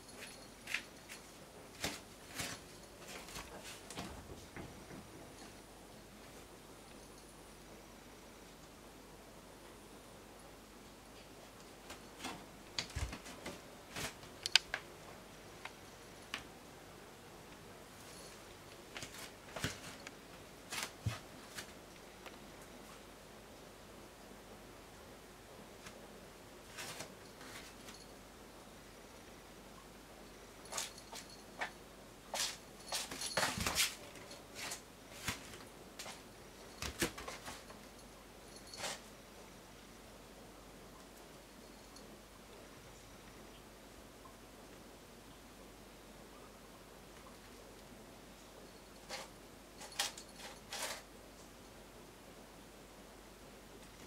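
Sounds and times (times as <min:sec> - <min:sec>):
cat pawing among shoes: 0:18.8 - 0:21.8.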